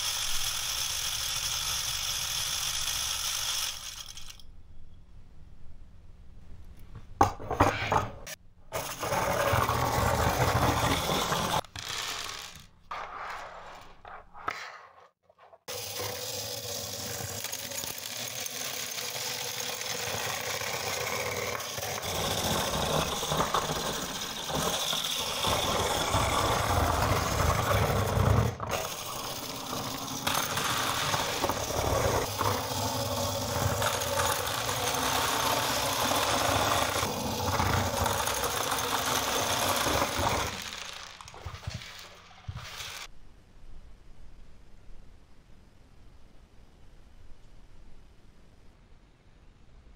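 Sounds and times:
toy motor buzzing rattle: 0.0s - 4.5s, 10.2s - 12.7s, 15.7s - 43.1s.

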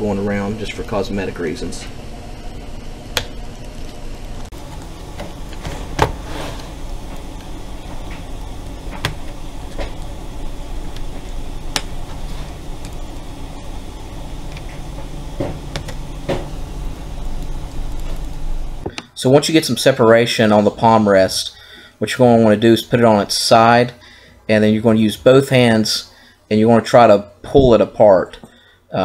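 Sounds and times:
steady background hum: 0.0s - 29.0s.

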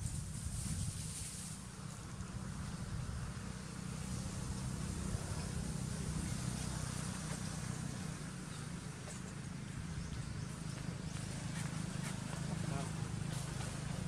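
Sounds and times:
faint hiss: 0.0s - 9.9s
steady low rumble: 0.0s - 14.0s.

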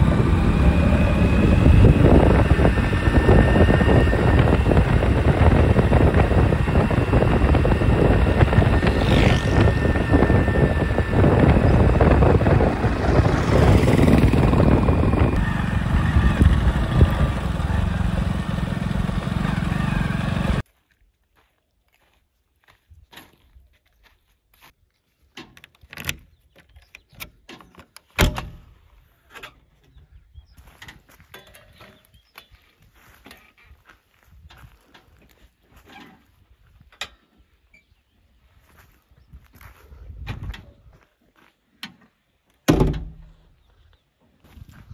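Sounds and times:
motorcycle engine running: 0.0s - 20.6s
wind buffeting microphone: 0.0s - 20.6s, 39.2s - 41.0s, 44.5s - 44.9s.

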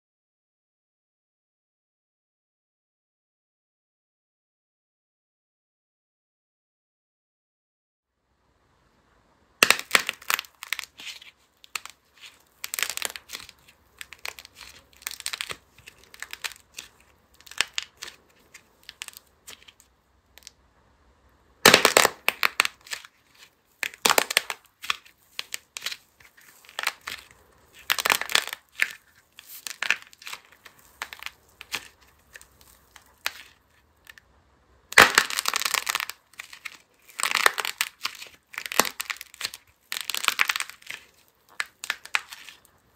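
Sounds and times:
clay capsule crackling and crunching: 9.6s - 20.6s, 21.5s - 34.3s, 34.9s - 42.9s.

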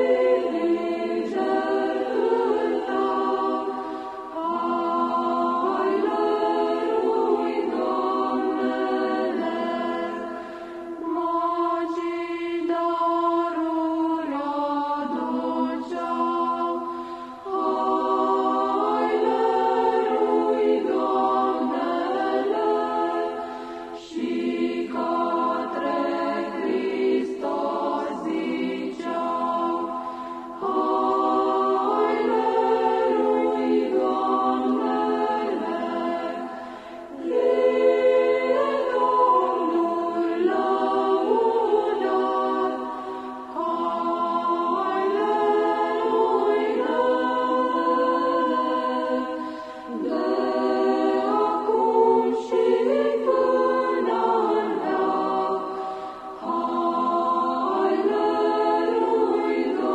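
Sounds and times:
choir singing a carol: 0.0s - 59.9s.

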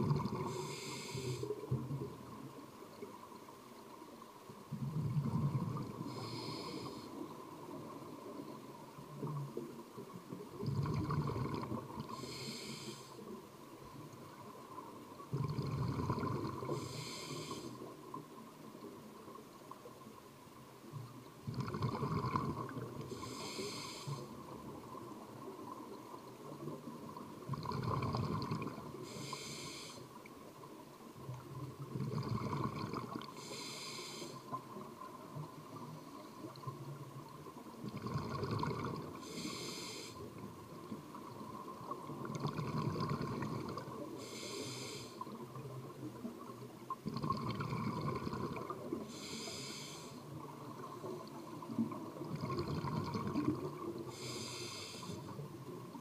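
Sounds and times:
regulator hiss: 0.4s - 1.7s, 12.1s - 13.2s, 16.6s - 17.9s, 23.1s - 24.3s, 29.0s - 30.1s, 33.4s - 34.6s, 39.2s - 40.3s, 44.2s - 45.2s, 49.0s - 50.2s, 54.1s - 55.4s
air bubbles rumbling underwater: 52.0s - 53.8s.

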